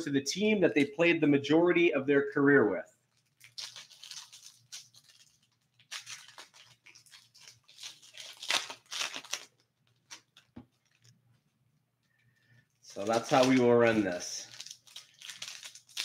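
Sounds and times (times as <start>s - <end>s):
foil wrappers crinkling: 3.0s - 11.5s, 12.9s - 16.0s
cards rustling: 3.1s - 11.5s, 12.9s - 16.0s.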